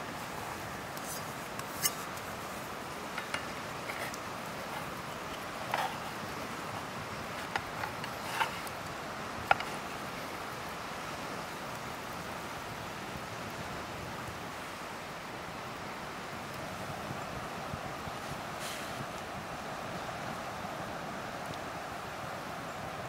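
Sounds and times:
light clicks and taps: 3.1s - 9.8s.

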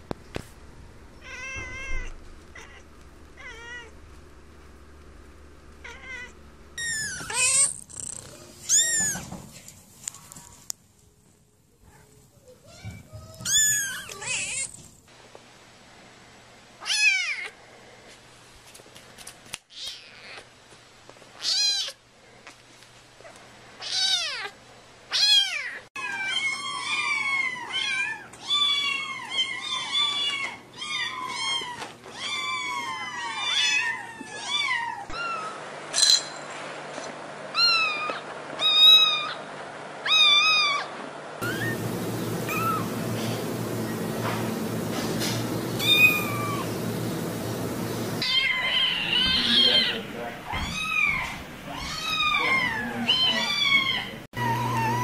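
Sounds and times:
kittens mewing: 5.8s - 9.3s, 45.8s - 46.8s, 48.2s - 55.0s.

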